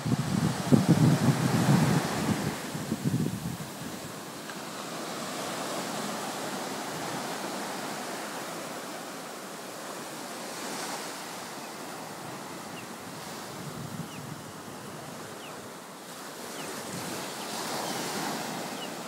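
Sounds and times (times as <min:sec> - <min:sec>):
wind buffeting microphone: 0:00.0 - 0:04.3, 0:12.1 - 0:15.7, 0:16.4 - 0:18.9
ocean surf breaking: 0:00.0 - 0:19.0.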